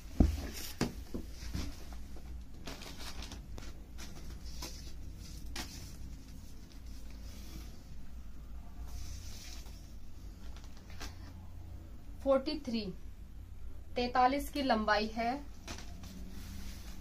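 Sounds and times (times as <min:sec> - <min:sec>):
fabric rustling and brushing: 0:00.0 - 0:11.1, 0:15.5 - 0:17.0.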